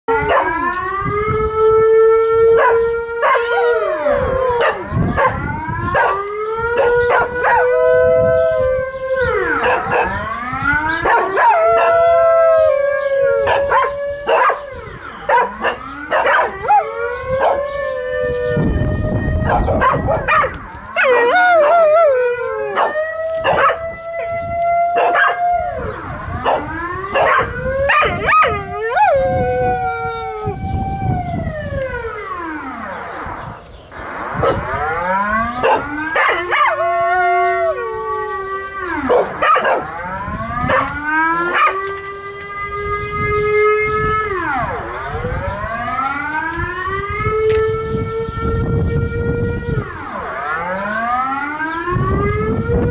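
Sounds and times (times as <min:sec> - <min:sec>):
dog howling: 0:02.6 - 0:05.4, 0:35.6 - 0:38.4.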